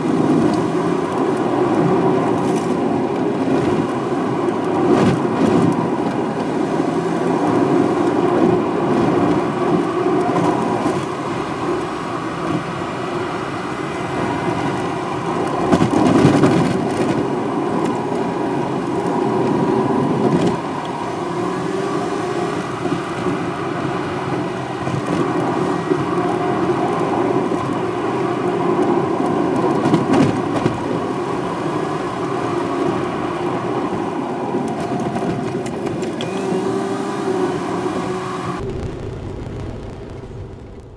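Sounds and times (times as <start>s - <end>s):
car engine drone: 0.0s - 40.9s
road rumble: 0.0s - 40.9s
faint hum: 38.4s - 40.9s.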